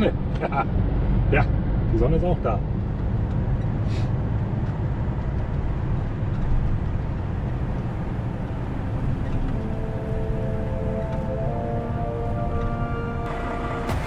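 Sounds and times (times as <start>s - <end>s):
diesel engine and road rumble: 0.0s - 14.0s
faint music: 8.0s - 14.0s.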